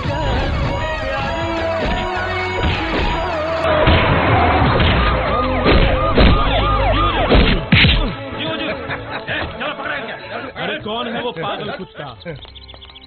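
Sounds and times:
siren-like whoop: 0:00.0 - 0:07.3
punch and smash hits: 0:02.6 - 0:06.6, 0:07.2 - 0:08.2.

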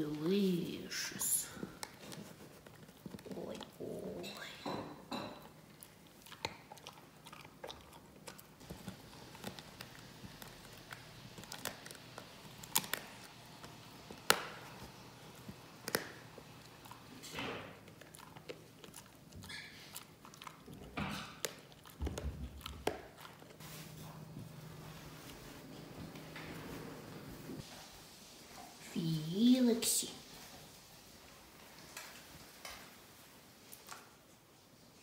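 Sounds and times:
dog gnawing bone crunching: 0:01.6 - 0:04.0, 0:05.4 - 0:24.1.

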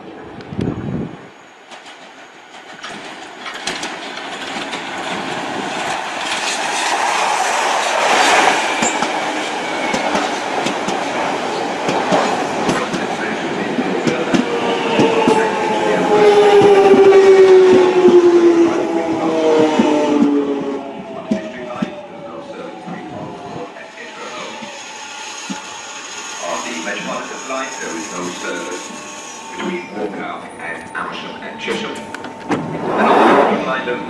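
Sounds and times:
train wheels clicking over rail joints: 0:01.6 - 0:15.5, 0:24.2 - 0:30.0.

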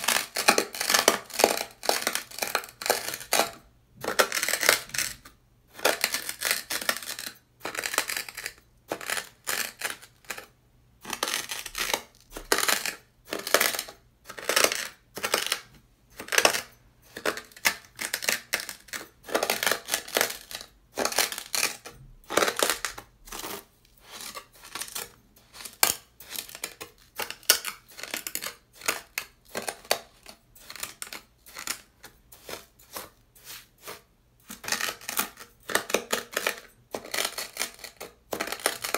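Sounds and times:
knife scraping through sand: 0:32.4 - 0:34.0.

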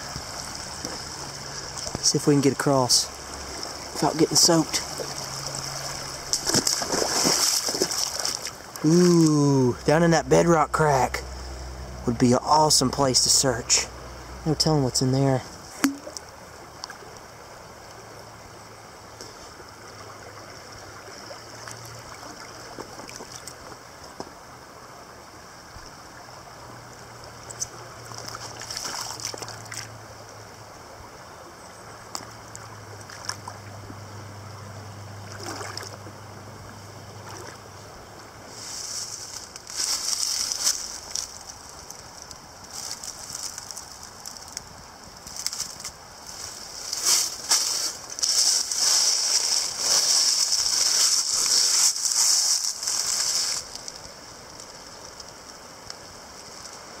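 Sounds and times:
creek water running: 0:00.0 - 0:57.0
magnet splashing in water: 0:06.3 - 0:08.6
footsteps crunching dry leaves: 0:38.5 - 0:41.8, 0:42.7 - 0:44.4, 0:45.3 - 0:54.0.

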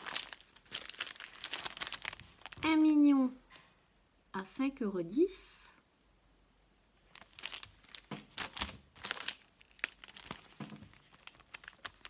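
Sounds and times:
plastic packets crinkling: 0:00.0 - 0:02.9, 0:07.0 - 0:12.0.

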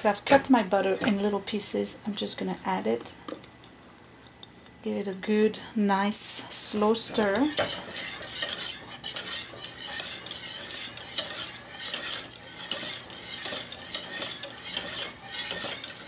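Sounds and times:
whisk scraping metal pot: 0:00.0 - 0:01.4, 0:06.5 - 0:16.0.

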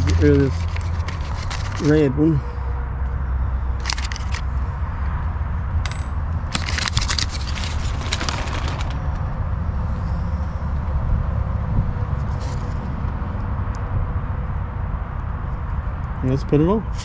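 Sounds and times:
paper card crinkling: 0:00.0 - 0:02.0, 0:03.8 - 0:04.4, 0:06.5 - 0:09.1
steady low rumble: 0:00.0 - 0:16.3.

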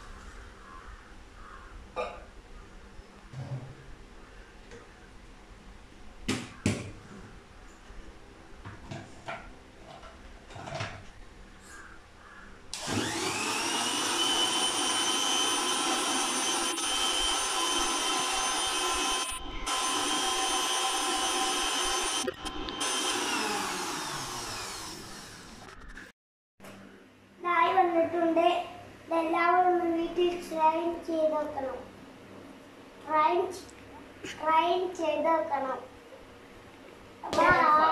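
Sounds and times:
mixer grinder motor whine: 0:12.7 - 0:25.8.

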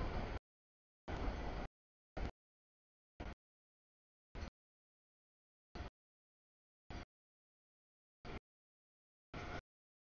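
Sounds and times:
freight train rumble: 0:00.0 - 0:00.4.

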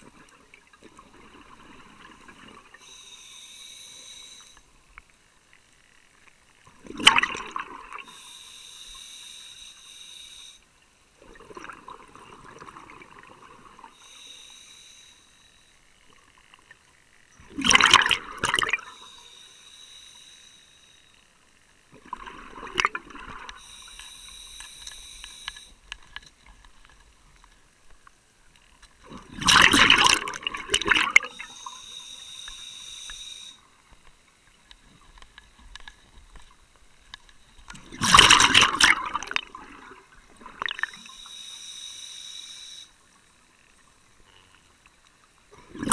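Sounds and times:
regulator hissing inhale: 0:02.7 - 0:04.7, 0:08.0 - 0:10.7, 0:13.9 - 0:15.8, 0:18.8 - 0:21.2, 0:23.5 - 0:25.8, 0:31.2 - 0:33.7, 0:41.0 - 0:43.0
exhaled bubbles rushing: 0:06.8 - 0:08.1, 0:11.2 - 0:13.9, 0:17.5 - 0:18.9, 0:22.0 - 0:23.6, 0:29.0 - 0:31.4, 0:37.8 - 0:41.1.

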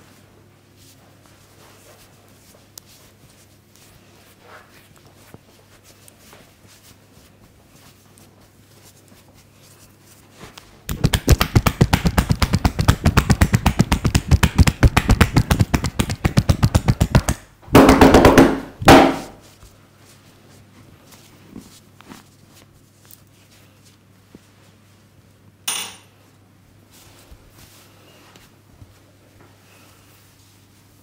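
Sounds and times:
hands striking body rapidly: 0:10.9 - 0:19.4.

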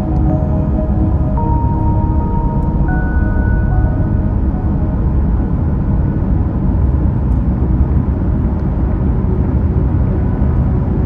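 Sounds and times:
faint ambient music: 0:00.0 - 0:08.2
car road and wind rumble: 0:00.0 - 0:11.0.

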